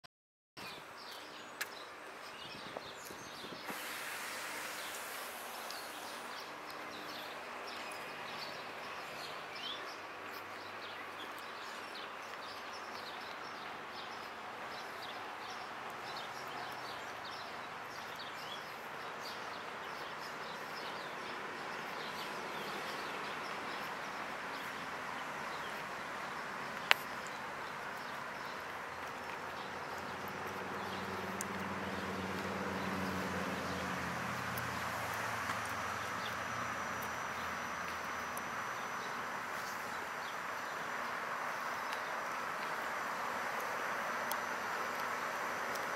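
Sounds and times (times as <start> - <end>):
outdoor background noise: 0.6 - 45.9
vehicle engine: 21.4 - 41.6.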